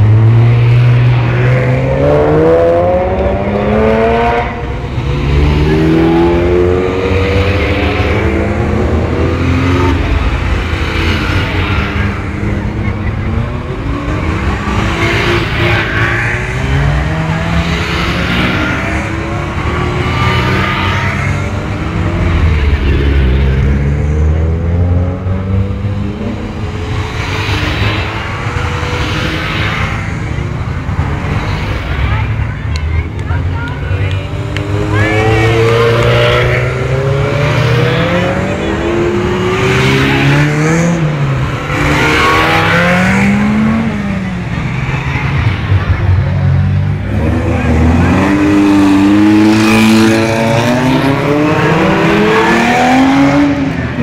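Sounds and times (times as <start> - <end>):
sports cars revving past: 0.0 - 54.0.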